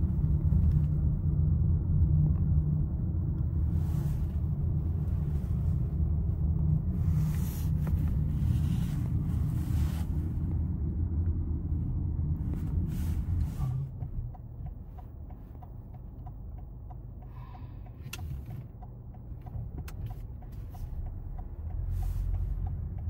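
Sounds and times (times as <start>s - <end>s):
car interior road rumble: 0.0s - 23.0s
faint regular ticking: 14.0s - 23.0s.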